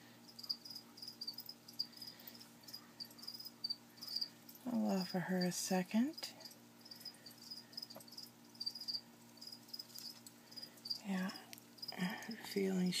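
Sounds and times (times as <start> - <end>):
cricket chirping: 0.2 - 4.6, 6.4 - 12.3.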